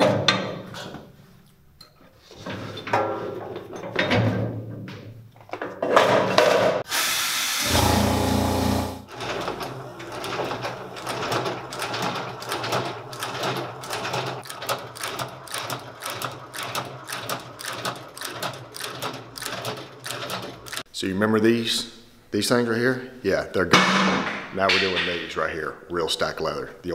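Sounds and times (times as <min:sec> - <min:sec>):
stitching machine clicking: 0:09.1 - 0:20.9.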